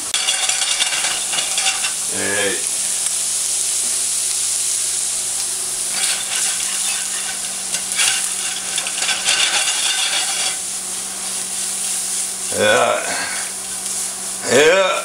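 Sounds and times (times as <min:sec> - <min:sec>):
spatula scraping and clattering: 0:00.0 - 0:02.1, 0:05.8 - 0:10.7
shrimp sizzling in frying pan: 0:00.0 - 0:15.0.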